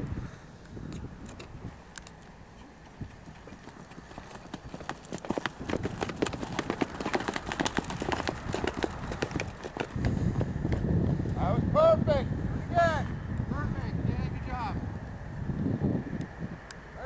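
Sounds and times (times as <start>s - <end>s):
horse hoofbeats: 2.6s - 11.2s.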